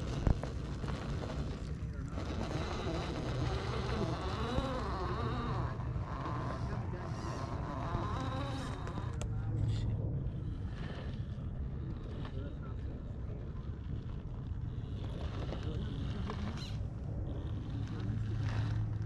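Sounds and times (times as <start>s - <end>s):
toy car motor and gears whining: 0.0s - 9.3s, 14.1s - 19.0s.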